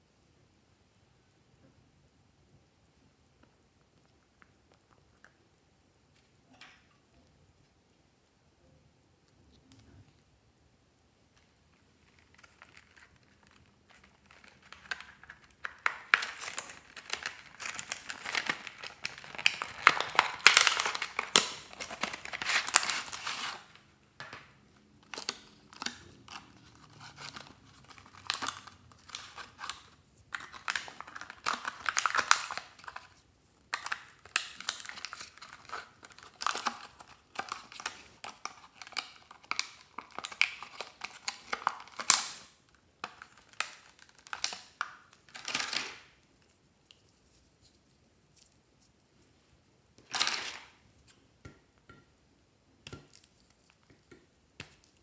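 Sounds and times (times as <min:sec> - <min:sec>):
plastic packaging crinkling: 0:12.0 - 0:48.6, 0:50.0 - 0:50.8.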